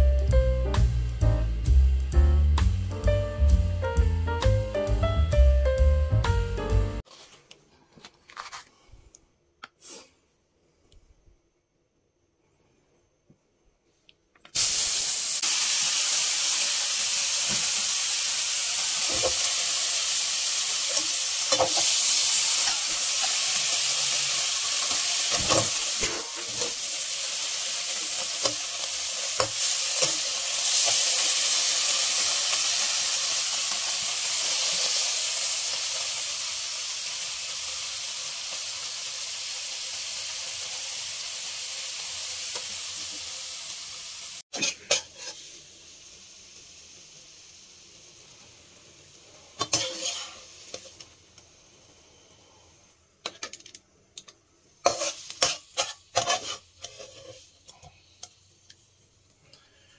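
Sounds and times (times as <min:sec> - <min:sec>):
spatula scraping a wok: 0:07.0 - 0:07.4, 0:20.8 - 0:32.8, 0:44.5 - 0:45.6, 0:49.5 - 0:51.0, 0:54.8 - 0:58.3
food sizzling in oil: 0:14.6 - 0:53.8, 0:54.7 - 0:59.3.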